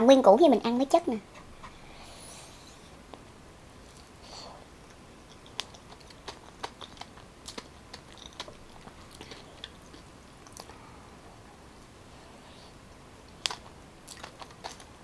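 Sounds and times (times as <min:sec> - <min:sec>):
person chewing with mouth clicks: 0:04.8 - 0:10.8, 0:13.4 - 0:15.0.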